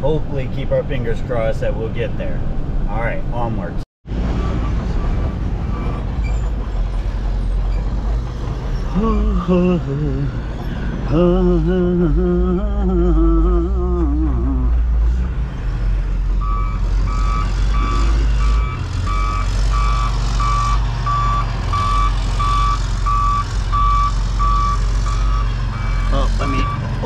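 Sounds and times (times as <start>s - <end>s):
truck engine running: 4.1s - 27.0s
reversing alarm beeping: 16.4s - 27.0s.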